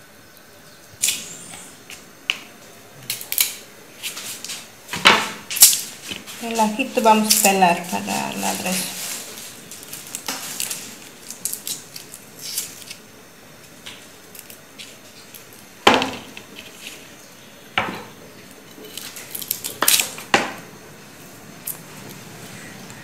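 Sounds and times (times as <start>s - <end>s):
garlic skins crackling: 1.0s - 17.4s, 18.3s - 20.3s.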